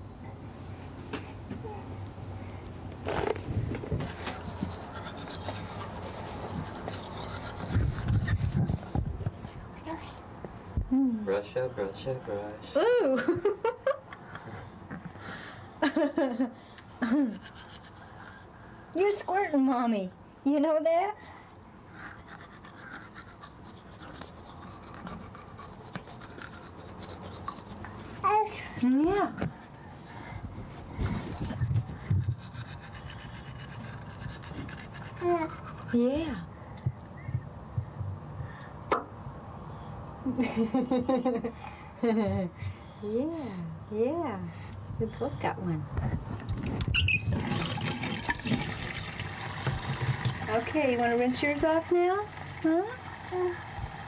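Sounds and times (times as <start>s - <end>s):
toothbrush scrubbing teeth: 4.0s - 10.2s, 16.9s - 18.4s, 21.8s - 29.0s, 31.0s - 36.4s, 48.3s - 51.9s.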